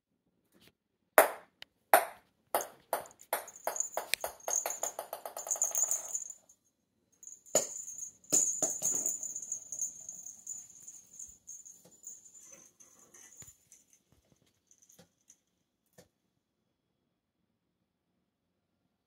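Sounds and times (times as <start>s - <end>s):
toy ball bouncing on wooden floor: 1.2s - 6.4s, 7.2s - 12.2s
ball rolling with high ringing: 2.0s - 6.5s, 7.2s - 13.9s.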